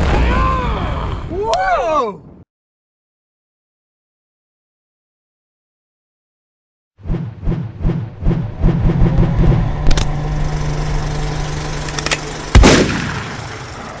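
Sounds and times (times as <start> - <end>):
low thumps: 7.0 - 13.1
steady low hum: 7.2 - 14.0
sharp hit: 8.7 - 13.9.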